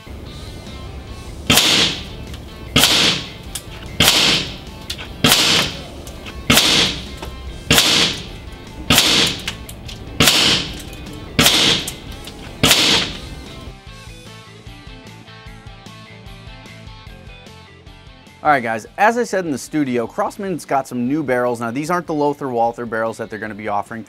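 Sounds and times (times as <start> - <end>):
background music: 0.0 - 24.0
air rifle shots: 1.5 - 5.9, 6.5 - 9.6, 10.2 - 13.4.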